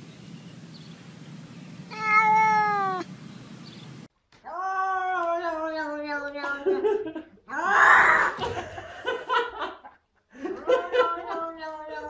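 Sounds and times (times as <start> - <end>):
cat meowing: 1.9 - 3.1, 4.5 - 6.6.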